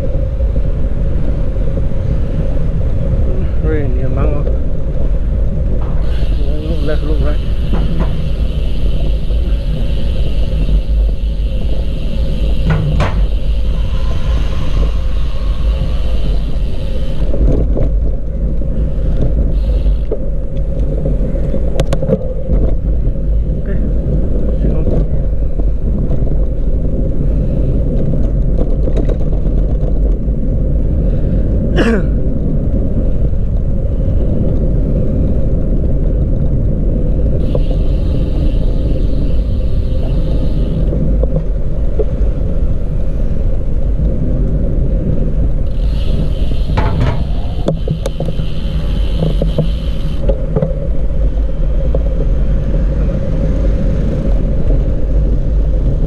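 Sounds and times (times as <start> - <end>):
road noise while cycling: 0.0 - 56.0
wind rumbling on microphone: 0.0 - 56.0
high hiss: 5.8 - 17.5, 19.5 - 20.2, 37.4 - 40.9, 45.7 - 50.2.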